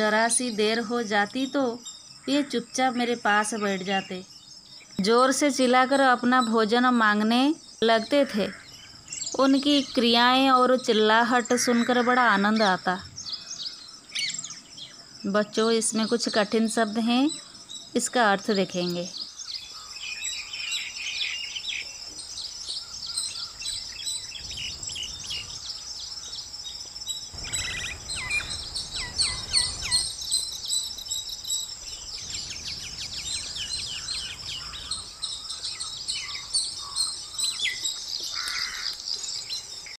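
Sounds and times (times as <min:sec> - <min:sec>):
steady high ringing: 0:20.3 - 0:34.2
mynas chirping and whistling: 0:27.3 - 0:38.0.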